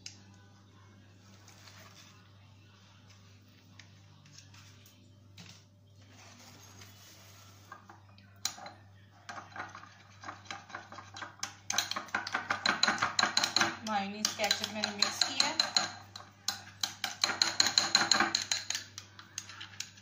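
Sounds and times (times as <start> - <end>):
low steady hum: 0.0 - 17.2
spoon clinking against glass bowl: 8.4 - 19.9.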